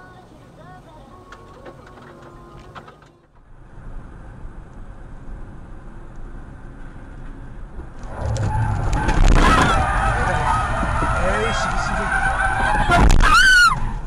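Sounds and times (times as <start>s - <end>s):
car road and engine noise: 0.0s - 14.0s
harsh rush of noise: 7.8s - 14.0s.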